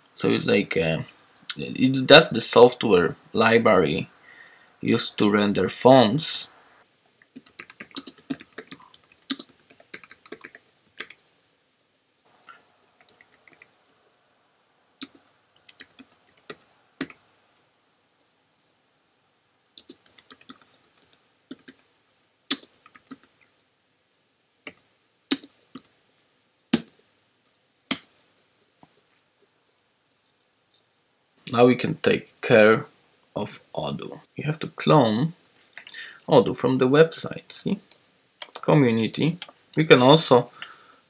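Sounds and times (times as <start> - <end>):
typing on computer keyboard: 7.3 - 11.2, 13.0 - 13.7, 15.0 - 17.2, 19.8 - 21.8, 22.5 - 23.3.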